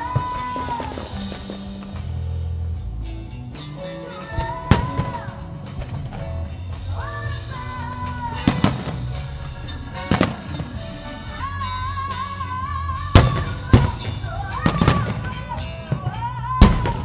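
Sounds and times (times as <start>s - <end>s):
music with held melody: 0.1s - 17.0s
firework shells booming: 13.2s - 17.0s.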